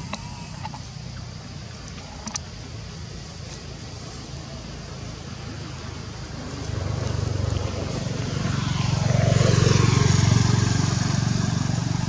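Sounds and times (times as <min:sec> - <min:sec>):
passing vehicle engine: 0:04.3 - 0:12.0.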